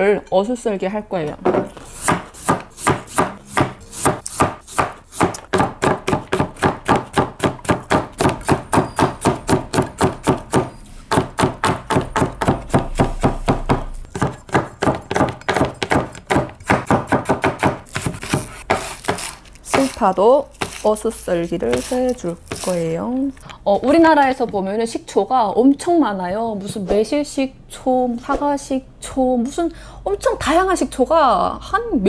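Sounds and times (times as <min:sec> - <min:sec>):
knife slicing on plastic cutting board: 0:17.9 - 0:22.8.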